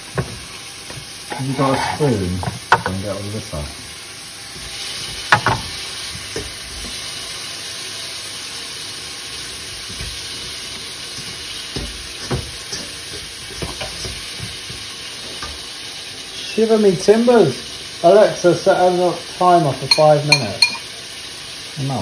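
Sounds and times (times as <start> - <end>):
cheese sizzling in a pan: 0.0 - 22.0
spoon knocking on pan: 2.4 - 3.0, 5.2 - 6.6, 11.2 - 14.8, 19.8 - 20.9.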